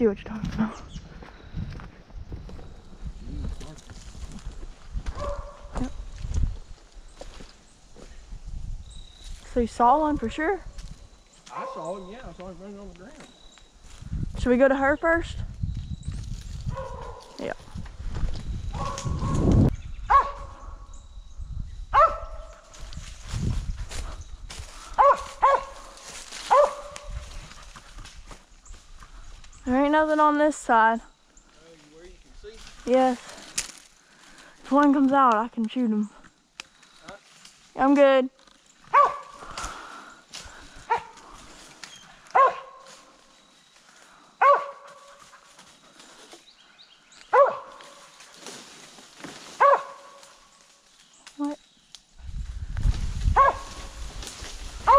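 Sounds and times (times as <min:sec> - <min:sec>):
dog barking: 0:05.1 - 0:05.8, 0:11.5 - 0:12.0, 0:16.7 - 0:17.4, 0:18.8 - 0:19.4, 0:20.1 - 0:20.6, 0:21.9 - 0:22.6, 0:25.0 - 0:25.9, 0:26.5 - 0:27.2, 0:38.9 - 0:39.4, 0:40.9 - 0:41.2, 0:42.3 - 0:42.9, 0:44.4 - 0:45.2, 0:47.3 - 0:47.9, 0:49.6 - 0:50.2, 0:53.4 - 0:53.7.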